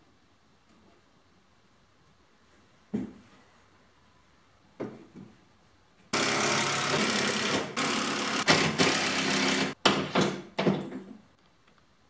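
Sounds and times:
power drill driving screw: 6.2s - 9.8s.

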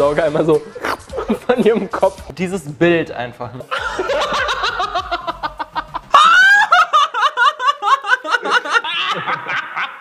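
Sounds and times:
high-pitched human laughter: 3.7s - 10.0s.

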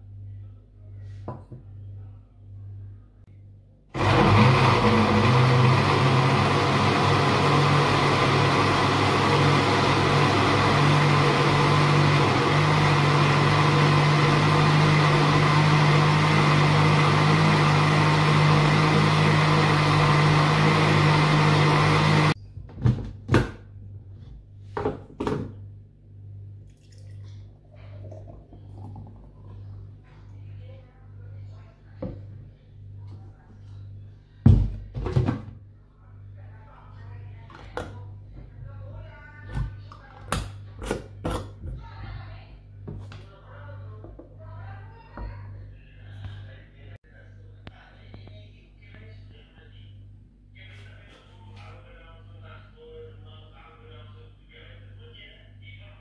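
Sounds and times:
blender motor running: 4.0s - 22.4s.

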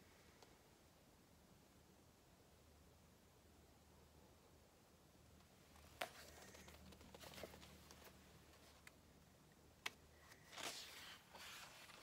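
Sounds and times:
soft rustle: 5.3s - 9.4s, 10.1s - 12.0s.

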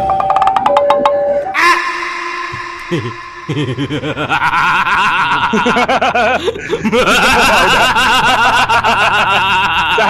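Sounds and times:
cartoonish chattering laughter: 2.8s - 10.0s.

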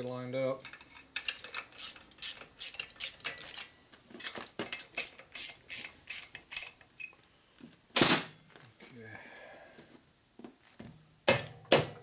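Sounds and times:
ratchet wrench clicking: 0.7s - 3.7s, 5.0s - 6.8s.

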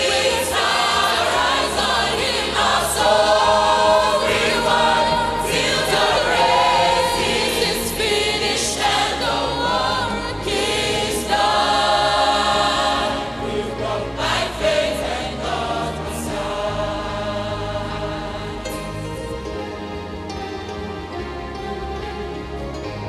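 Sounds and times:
choir singing: 0.0s - 19.4s.

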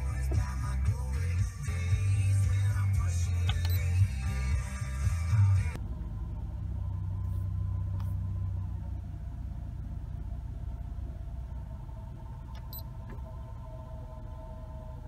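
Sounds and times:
low rumble inside truck cab: 0.0s - 15.0s.

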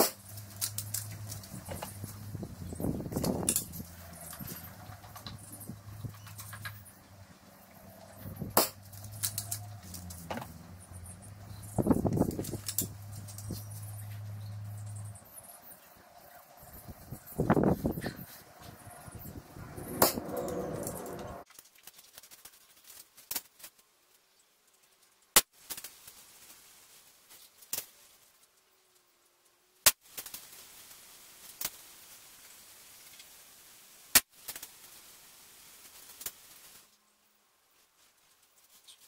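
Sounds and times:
pellets striking paper targets: 0.0s - 2.2s, 8.2s - 10.5s.

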